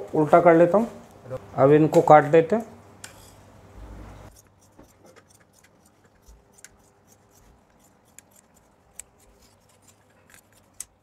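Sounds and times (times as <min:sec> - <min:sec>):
scissors cutting fabric: 0:04.3 - 0:11.0.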